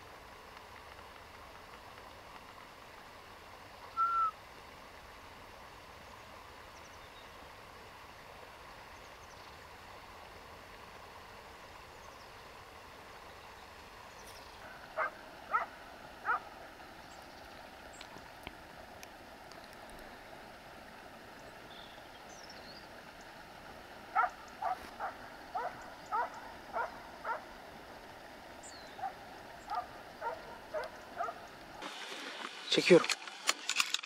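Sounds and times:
faint outdoor background: 0.0 - 34.0
short animal calls: 3.9 - 4.4.

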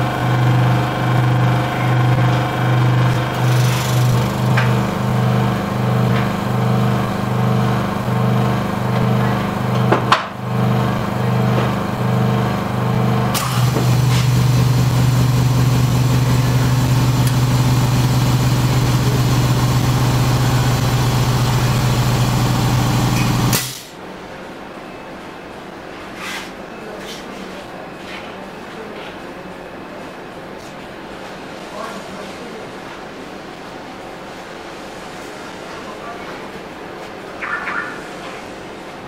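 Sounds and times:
pulsing motor hum: 0.0 - 23.6.

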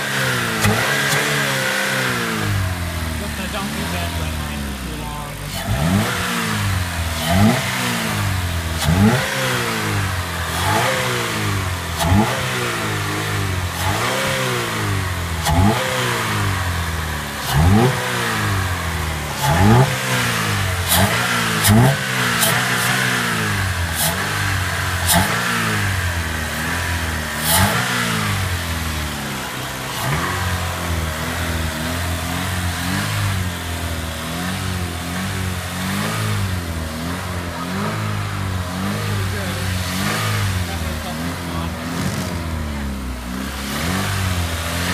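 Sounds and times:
car engine revving: 0.0 - 44.9.

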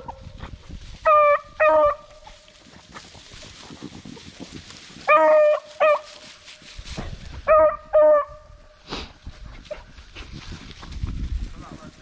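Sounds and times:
beagles baying: 1.0 - 2.4, 5.0 - 6.3, 7.3 - 8.6.

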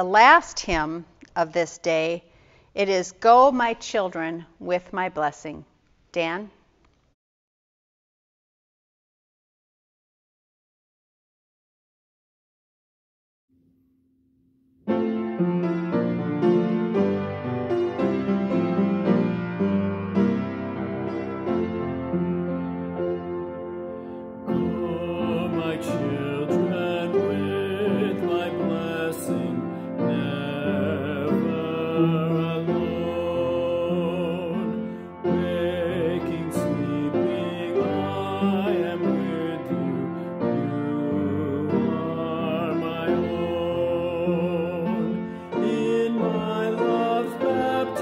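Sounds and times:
piano accompaniment: 13.6 - 48.0
man singing a hymn: 24.4 - 48.0.

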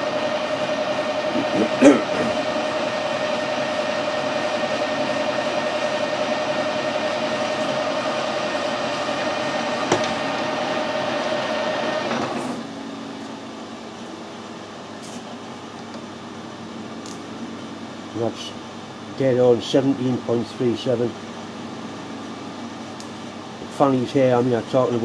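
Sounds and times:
metal lathe whining: 0.0 - 12.7.

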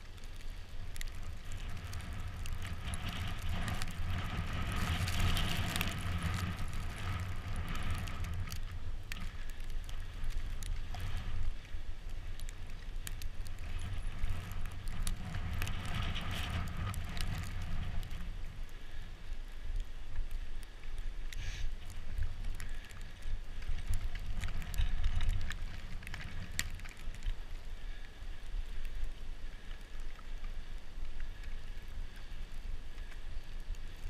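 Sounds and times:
small clicks and rattles: 0.0 - 18.4, 20.1 - 28.2
wind rumble on microphone: 0.0 - 34.0
tyre hiss on slush: 21.4 - 21.7.

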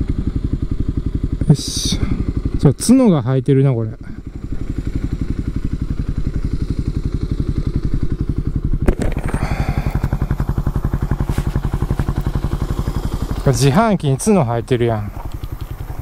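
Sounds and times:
motorcycle engine idling: 0.0 - 16.0
scraping rustle: 11.2 - 12.2.

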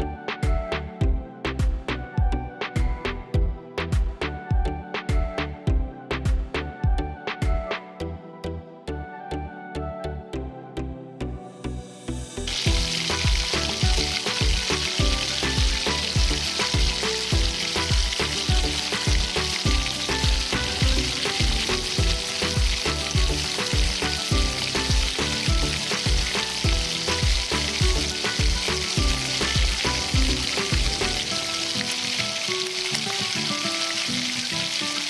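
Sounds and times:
background music with beat: 0.0 - 35.0
chicken deep-frying in oil: 12.5 - 35.0.

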